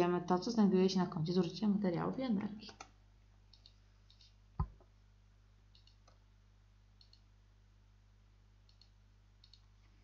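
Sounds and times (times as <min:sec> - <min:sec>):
faint steady low hum: 0:00.0 - 0:10.0
computer mouse clicking: 0:02.6 - 0:04.4, 0:05.7 - 0:06.2, 0:07.0 - 0:07.3, 0:08.7 - 0:09.7.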